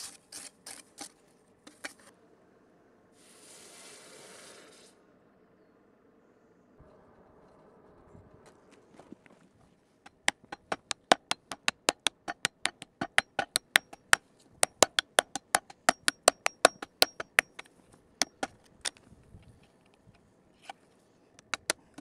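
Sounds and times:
hammer beating hot steel: 0:10.1 - 0:18.6.

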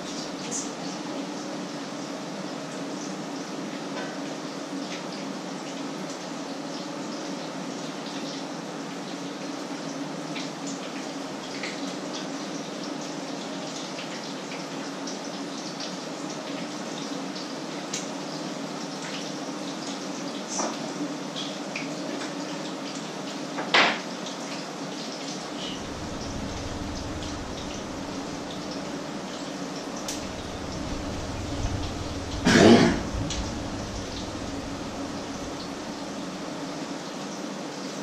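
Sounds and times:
low steady hum: 0:25.6 - 0:36.7.

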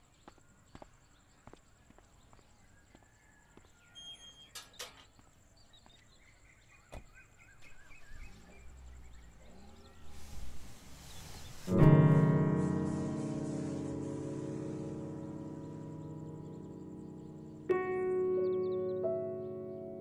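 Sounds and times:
low sustained musical chord: 0:11.8 - 0:20.0.

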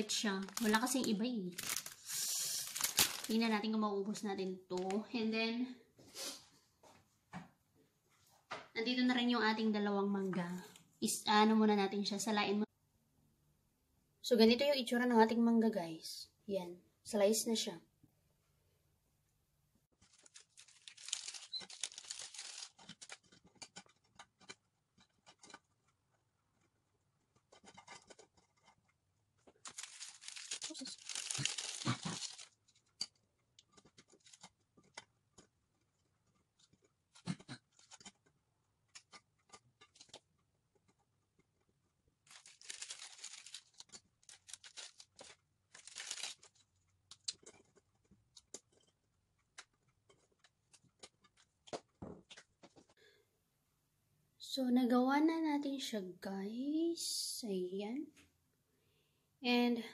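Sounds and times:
plastic wrapper crinkling and tearing: 0:00.0 - 0:03.5, 0:20.0 - 0:25.7, 0:29.4 - 0:35.1, 0:42.2 - 0:48.9.

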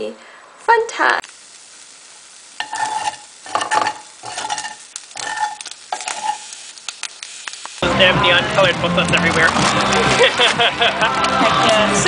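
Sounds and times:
eggs sizzling in a pan: 0:00.0 - 0:12.0
utensil scraping a pan: 0:02.6 - 0:06.7.

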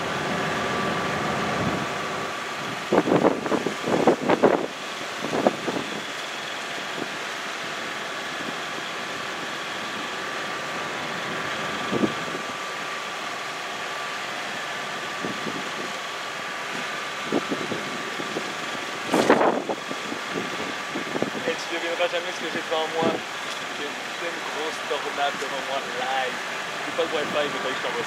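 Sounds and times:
steady mechanical hum: 0:00.0 - 0:28.0
burst of noise: 0:17.6 - 0:22.0.

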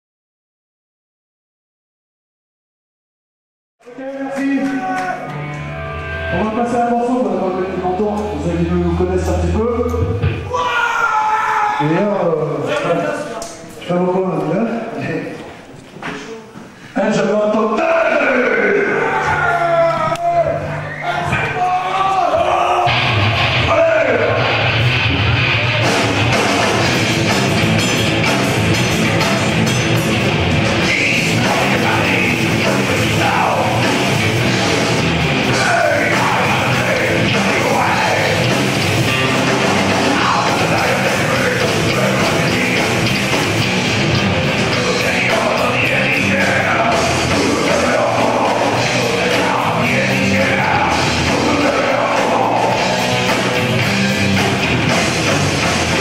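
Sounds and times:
drums: 0:03.8 - 0:13.6, 0:17.5 - 0:56.0
distorted electric guitars: 0:04.4 - 0:10.7, 0:22.4 - 0:56.0
bass guitar: 0:05.2 - 0:10.7, 0:22.3 - 0:56.0
shouted vocal: 0:10.4 - 0:12.2, 0:17.6 - 0:24.7, 0:30.8 - 0:34.6, 0:35.3 - 0:43.2, 0:44.7 - 0:53.6.

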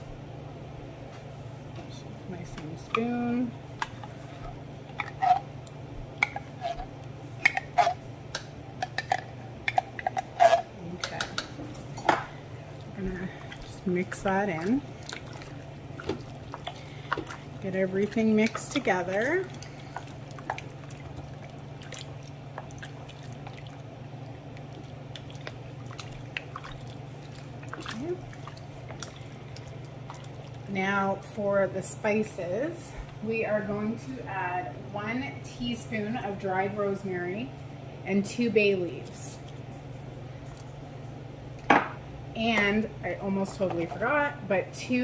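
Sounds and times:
steady low hum: 0:00.0 - 0:45.0
spoon stirring wet stew: 0:12.2 - 0:30.7.

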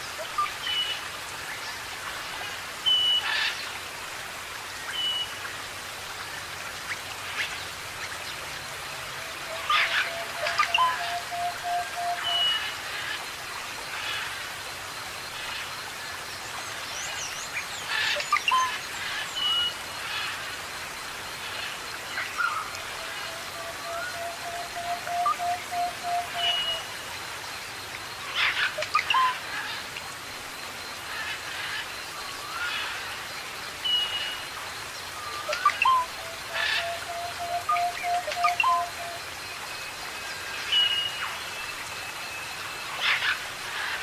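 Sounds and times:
birds whistling and chirping: 0:35.4 - 0:39.2.

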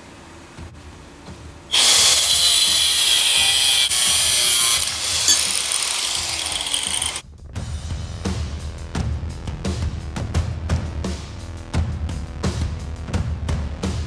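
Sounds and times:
angle grinder cutting steel: 0:01.7 - 0:07.2.

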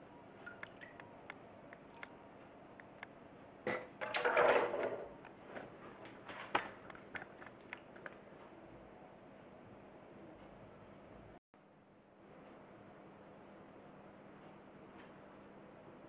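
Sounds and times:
liquid dripping: 0:00.0 - 0:02.1
liquid sloshing and running: 0:00.4 - 0:01.2, 0:03.7 - 0:05.2.

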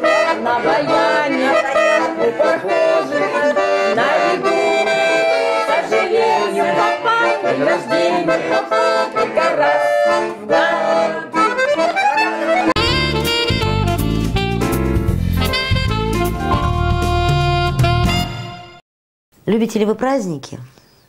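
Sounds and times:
people singing along: 0:00.0 - 0:12.7
button accordion playing: 0:00.0 - 0:18.8.

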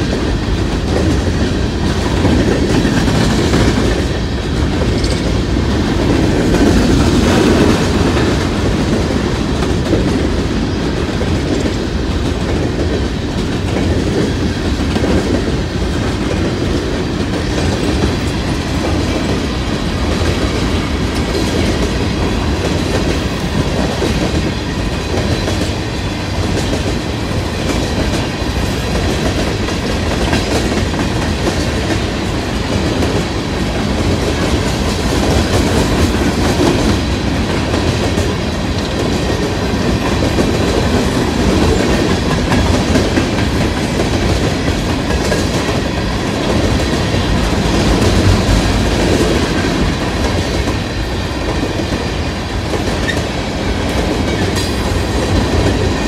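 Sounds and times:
freight train rumbling past: 0:00.0 - 0:56.0
steel wheels clattering on rails: 0:00.0 - 0:56.0.

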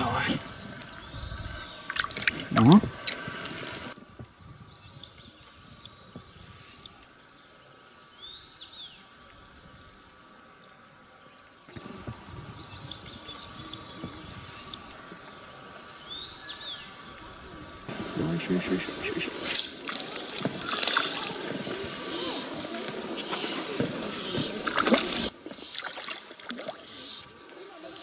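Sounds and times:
faint outdoor hiss: 0:00.0 - 0:28.0
songbirds chirping: 0:00.0 - 0:28.0.

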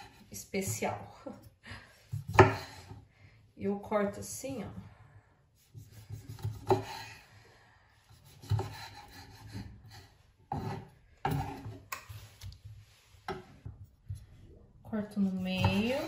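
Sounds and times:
knife slicing on cutting board: 0:05.8 - 0:07.2, 0:08.2 - 0:12.5.

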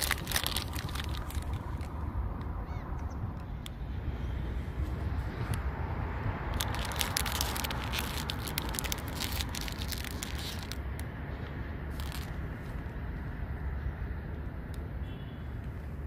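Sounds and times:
plastic wrapper crinkling: 0:00.0 - 0:02.0, 0:06.4 - 0:11.0, 0:11.9 - 0:12.4
low wind rumble on microphone: 0:00.0 - 0:15.0.

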